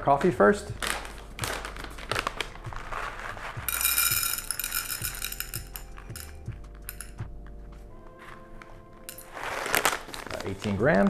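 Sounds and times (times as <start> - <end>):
paper bag crinkling: 0.1 - 6.1, 8.2 - 11.0
coffee beans pouring into cup: 1.0 - 6.3.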